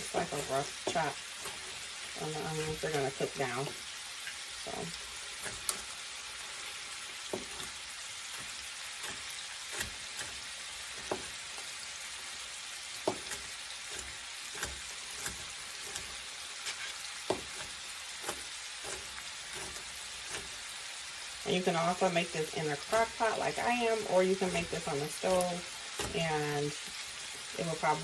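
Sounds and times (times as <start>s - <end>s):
meat sizzling in a skillet: 0.0s - 28.0s.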